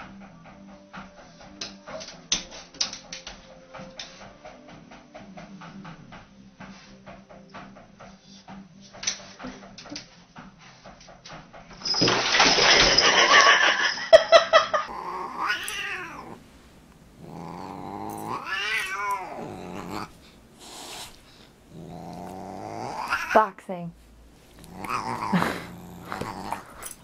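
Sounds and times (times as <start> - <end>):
cat yowling: 14.9 - 16.4, 17.2 - 20.2, 20.8 - 23.5, 24.6 - 26.9.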